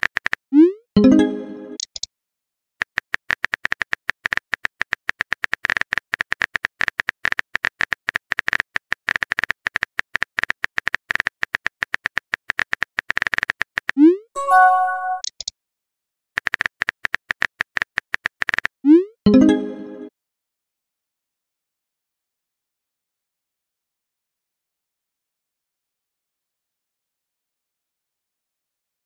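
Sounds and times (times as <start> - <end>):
short chime: 14.4 - 15.2.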